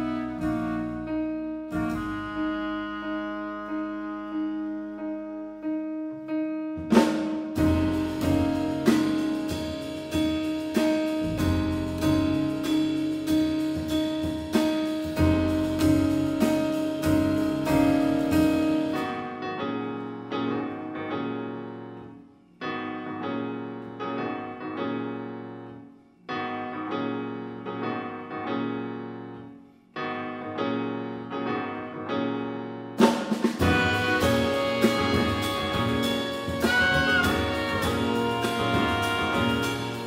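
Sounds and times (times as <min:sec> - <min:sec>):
long held notes: 0:00.0 - 0:05.6, 0:33.6 - 0:40.0
jazz combo playing: 0:00.0 - 0:21.6, 0:31.2 - 0:40.0
piano chords: 0:00.0 - 0:40.0
drum kit and cymbals: 0:06.8 - 0:19.2, 0:33.0 - 0:40.0.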